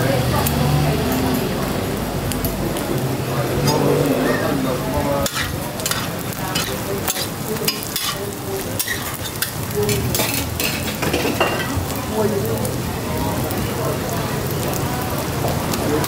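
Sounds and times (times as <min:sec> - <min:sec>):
roti sizzling on a griddle: 0:00.0 - 0:16.0
metal utensils clicking: 0:05.2 - 0:11.8.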